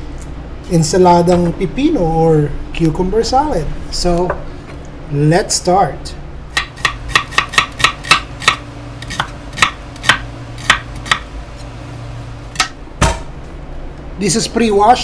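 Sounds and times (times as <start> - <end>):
knife chopping on wooden board: 6.6 - 11.3.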